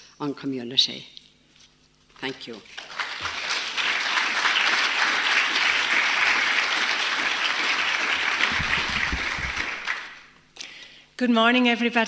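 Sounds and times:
audience applauding: 2.7 - 10.3.

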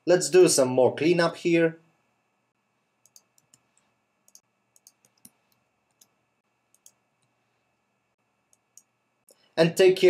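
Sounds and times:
computer mouse clicks: 3.0 - 7.4, 8.5 - 9.5.

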